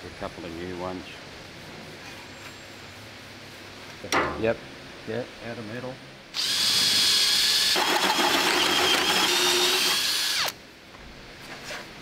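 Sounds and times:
electric drill whining into wood: 6.4 - 10.6.

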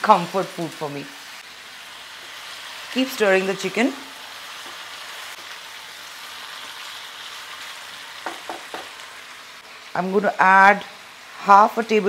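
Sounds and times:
chicken and potatoes sizzling in oil: 0.0 - 12.0
spatula knocking against pan: 8.2 - 9.0.

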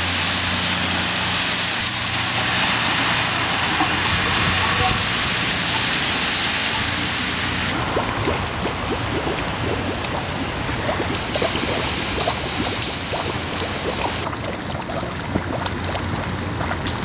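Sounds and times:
steady hiss of rain: 0.0 - 8.2
raindrops plinking into puddle: 7.7 - 17.0.

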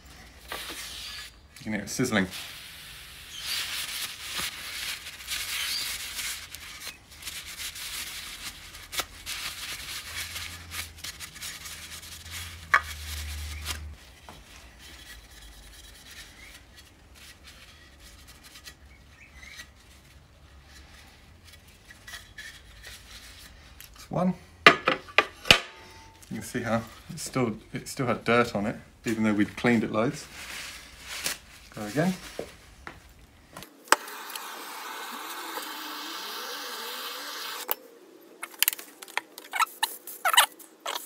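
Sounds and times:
tissue paper rubbing metal: 0.5 - 1.4, 2.2 - 23.6, 29.1 - 32.7.

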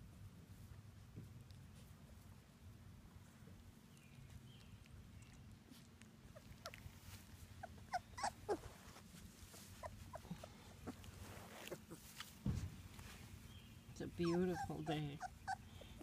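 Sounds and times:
puppies whimpering: 7.6 - 8.9, 9.6 - 12.1, 14.0 - 16.0.

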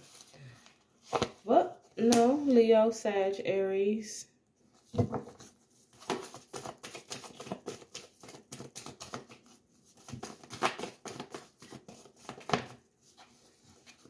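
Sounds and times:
cards being shuffled: 4.8 - 14.0.

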